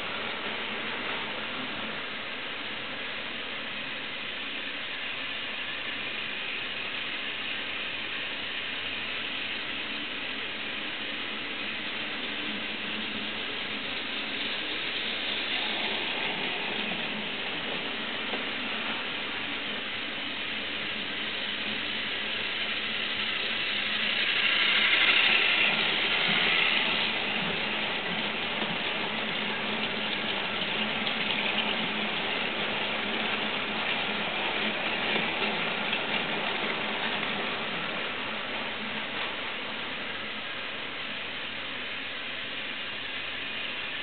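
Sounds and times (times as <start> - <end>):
toy train wheels rattling: 21.6 - 27.8.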